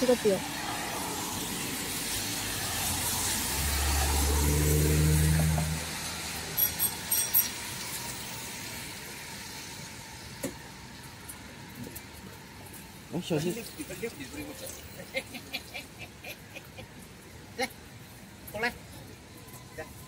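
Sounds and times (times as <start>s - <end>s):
vehicle engine passing close: 0.6s - 6.6s
high-pitched electronic beeps: 6.6s - 7.5s.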